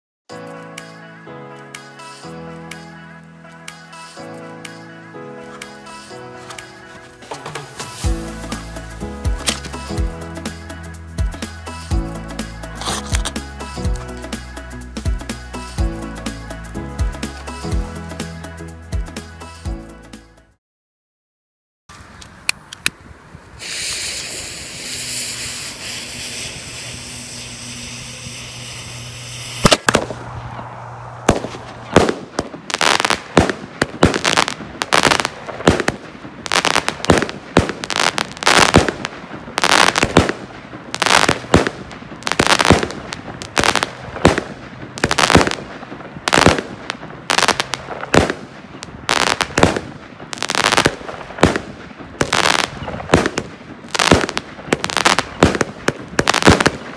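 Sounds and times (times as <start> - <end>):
crackling firework stars: 1.6 - 18.3, 21.9 - 56.9
firework bangs: 6.4 - 10.6, 23.6 - 56.9
fuse hissing: 23.6 - 29.8.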